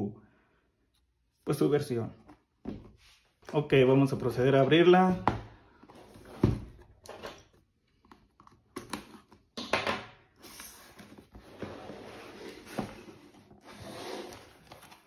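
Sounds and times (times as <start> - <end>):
cardboard rustling and scraping: 10.4 - 15.0.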